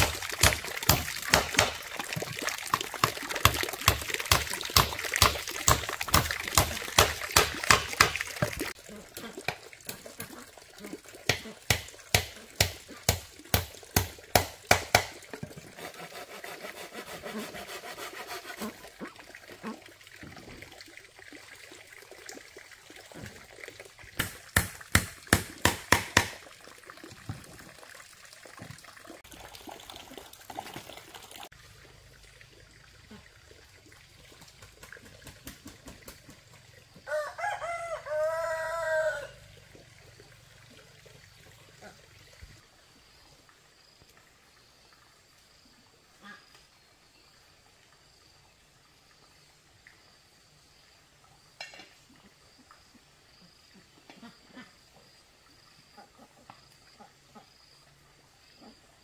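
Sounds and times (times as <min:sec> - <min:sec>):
rooster crowing: 0:37.0 - 0:39.4.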